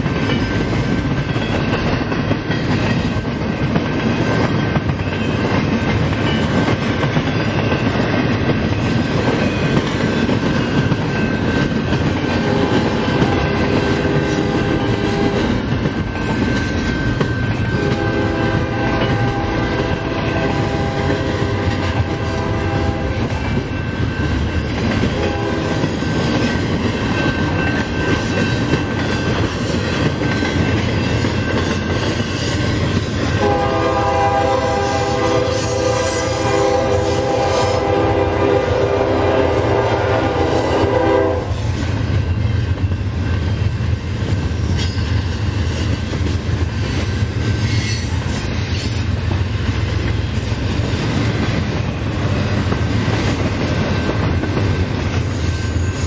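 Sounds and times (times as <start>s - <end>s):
train wheels clacking on rails: 0.0s - 56.0s
locomotive horn blasts: 12.4s - 15.5s, 17.7s - 23.3s, 25.1s - 25.9s, 33.4s - 41.6s.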